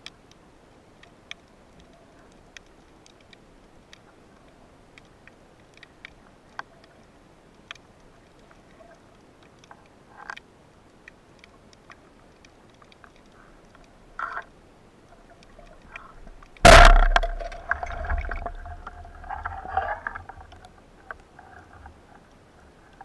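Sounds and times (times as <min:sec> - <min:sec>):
faint steady underwater hiss: 0:00.0 - 0:23.0
sharp underwater clicks: 0:01.0 - 0:21.4
short crackle: 0:15.1 - 0:23.0.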